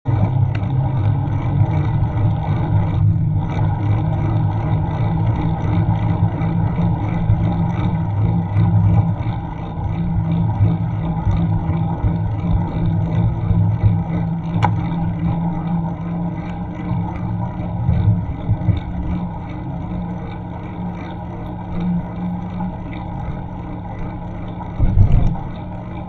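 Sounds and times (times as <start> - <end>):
wind and road rumble on bicycle: 0.0 - 26.0.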